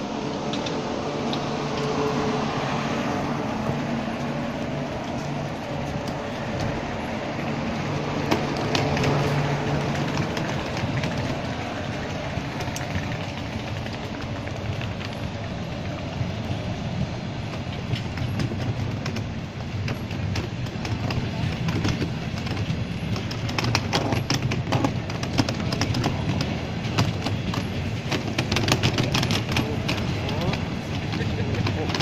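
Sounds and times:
train coaches rumbling past: 0.0s - 32.0s
sharp clicks and knocks: 8.2s - 15.3s, 17.5s - 32.0s.

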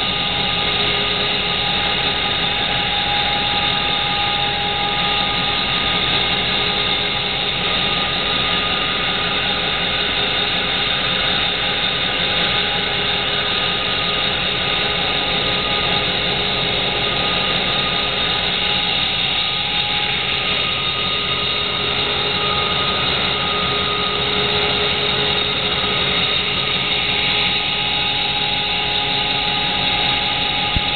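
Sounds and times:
diesel engine running: 0.0s - 30.9s
steady whining tones: 0.0s - 30.9s.

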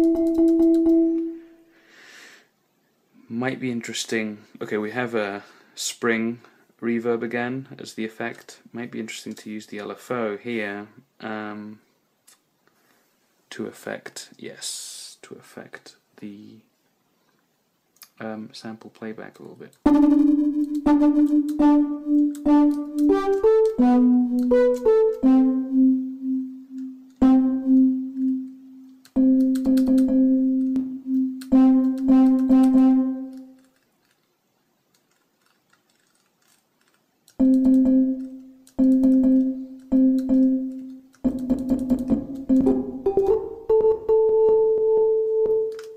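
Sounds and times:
synthesizer stuttering notes: 19.9s - 28.4s, 31.0s - 33.4s, 37.4s - 44.6s.

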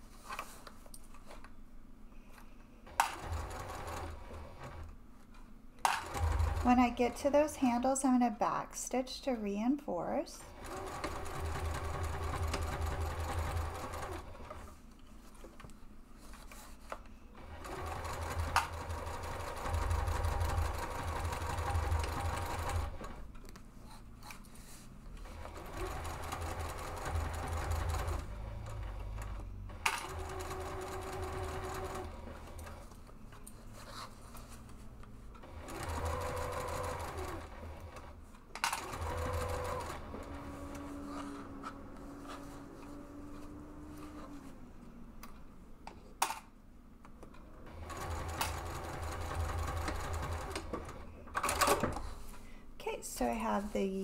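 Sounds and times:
sewing machine stitching: 2.9s - 4.9s, 5.8s - 7.5s, 10.5s - 14.7s, 17.4s - 23.2s, 25.1s - 32.9s, 35.4s - 44.5s, 47.6s - 52.2s.

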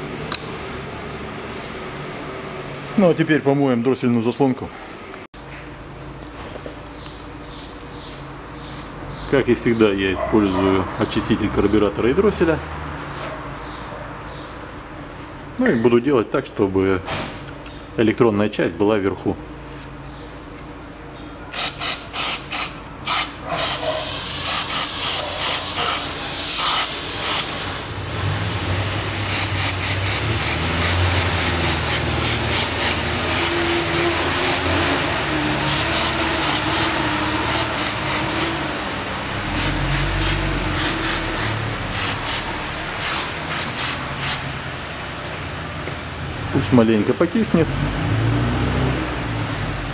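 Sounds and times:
aerosol spray hissing: 21.6s - 27.6s, 29.2s - 34.7s, 35.6s - 38.6s, 39.5s - 44.5s.

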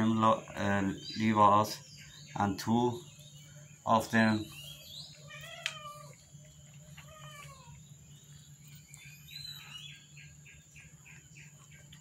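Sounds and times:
low steady hum: 0.0s - 12.0s
drawn-out falling bird calls: 4.5s - 8.0s.

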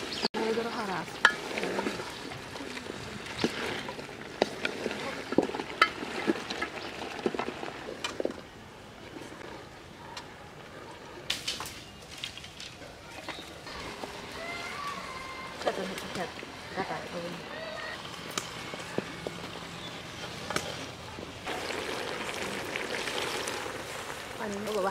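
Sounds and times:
wooden spatula scraping a pot: 0.5s - 8.3s
light sizzle: 11.3s - 24.9s.

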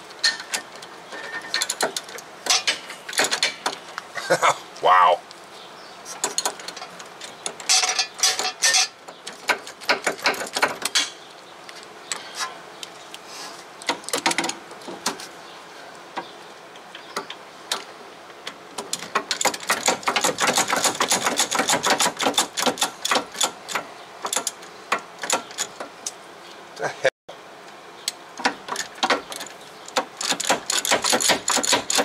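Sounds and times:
hand ratchet clicking: 30.2s - 32.0s.

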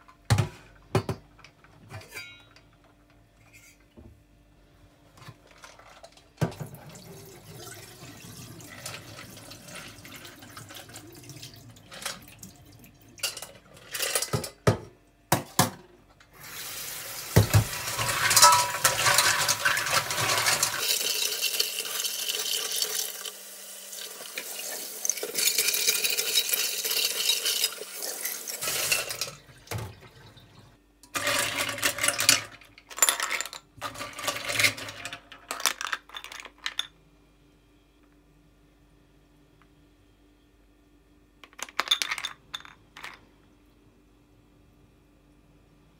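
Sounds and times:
tap water running: 6.4s - 13.3s, 16.4s - 32.5s
water pouring from a pot: 6.7s - 13.0s, 16.5s - 30.6s.

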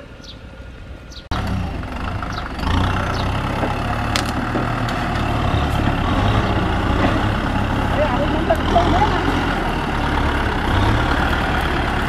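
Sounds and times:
tractor diesel engines rumbling: 0.0s - 12.0s.

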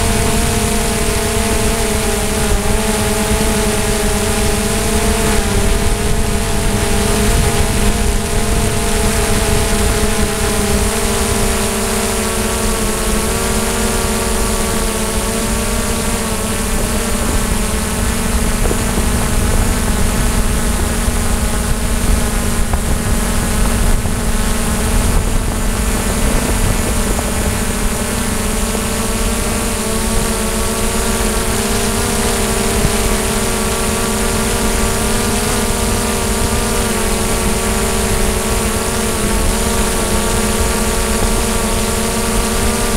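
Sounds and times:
low wind rumble: 0.0s - 11.6s, 14.3s - 33.3s
drone propellers whining: 0.0s - 42.9s.

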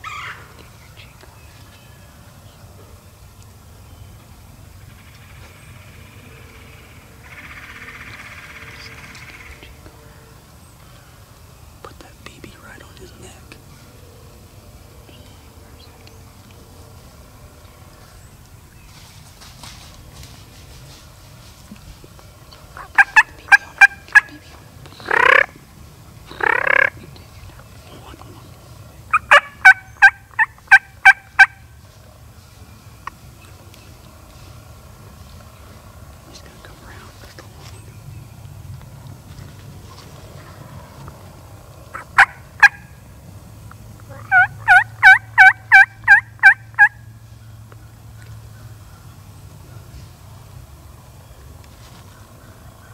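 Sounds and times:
turkey yelps: 0.0s - 0.5s, 22.8s - 24.4s, 25.0s - 25.6s, 26.3s - 27.0s, 29.1s - 31.6s, 41.9s - 43.0s, 44.1s - 47.0s
turkey gobbling: 22.7s - 25.6s, 26.3s - 27.0s, 29.1s - 31.7s, 41.9s - 43.0s, 44.1s - 47.0s.

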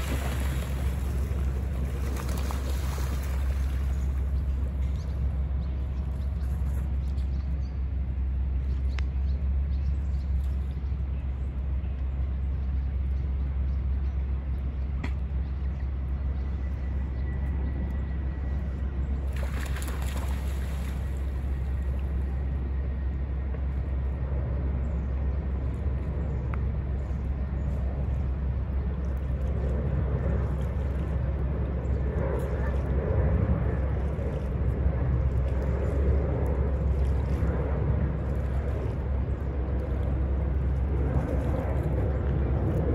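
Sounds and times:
water bird splashing: 0.0s - 5.3s, 19.2s - 22.3s
steady low rumble: 0.0s - 42.9s.

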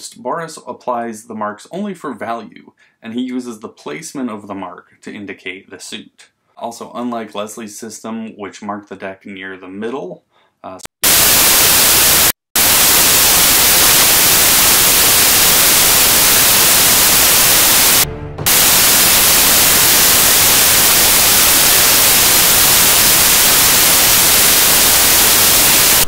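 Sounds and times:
white noise static hiss: 11.0s - 26.0s.

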